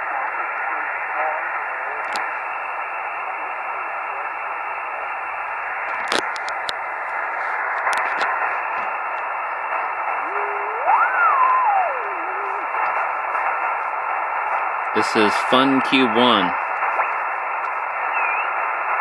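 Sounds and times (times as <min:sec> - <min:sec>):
radio static hiss: 0:00.0 - 0:19.0
whistling tone sliding in pitch: 0:10.2 - 0:13.0.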